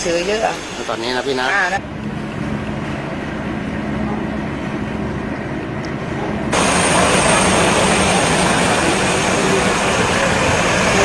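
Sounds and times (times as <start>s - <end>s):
low engine-like rumble: 1.7s - 11.0s.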